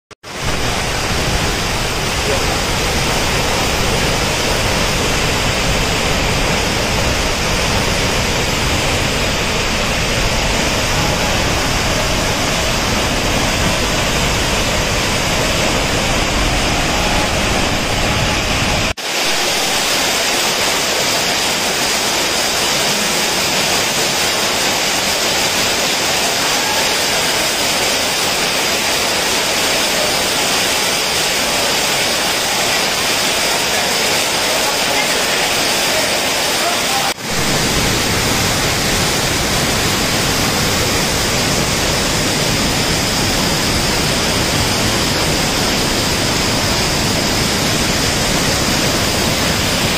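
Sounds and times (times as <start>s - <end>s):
heavy rain sheeting off a roof: 0.2s - 49.9s
waterfall rushing: 0.2s - 49.9s.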